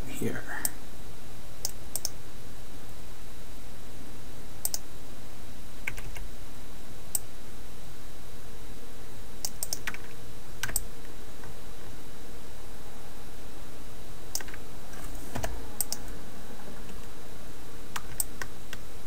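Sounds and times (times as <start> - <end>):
steady low hum: 0.0 - 19.0
keyboard and mouse clicks: 1.6 - 2.2, 4.6 - 4.8, 9.4 - 10.8, 14.3 - 14.6, 15.3 - 16.1, 17.9 - 18.8.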